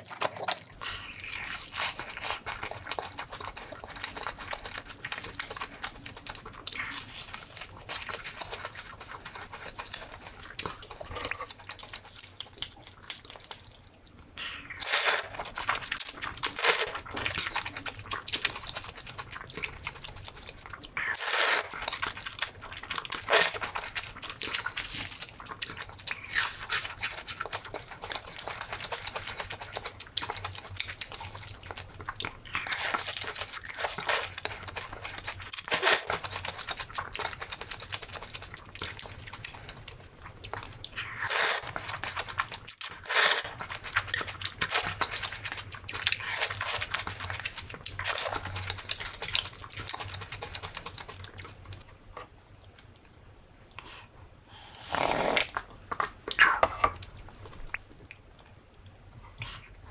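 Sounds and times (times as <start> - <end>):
wet chewing: 0.0 - 59.9
noodle slurping: 54.6 - 55.6.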